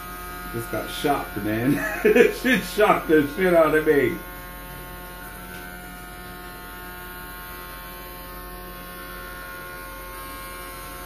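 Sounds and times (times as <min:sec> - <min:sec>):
electrical hum and buzz: 0:00.0 - 0:11.0.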